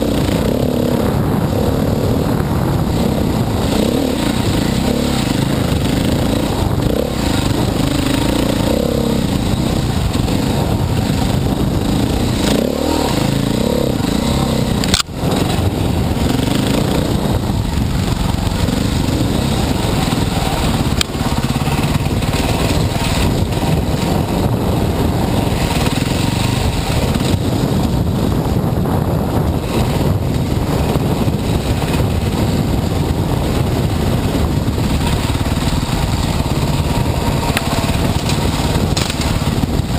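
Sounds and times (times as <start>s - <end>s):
dirt bike engine revving: 0.0s - 39.9s
rushing wind noise: 0.0s - 39.9s
sharp click: 14.8s - 15.1s.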